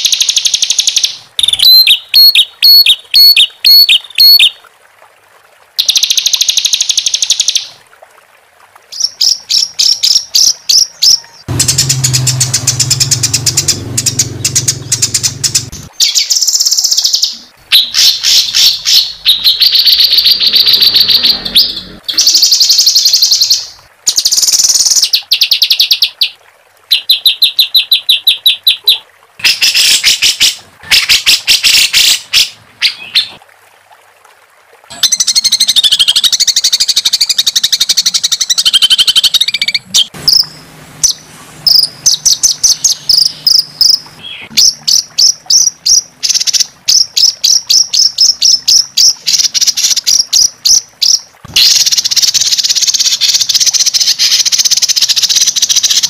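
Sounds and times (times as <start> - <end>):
songbird harsh notes and trills: 9.0 - 26.2, 34.9 - 56.0.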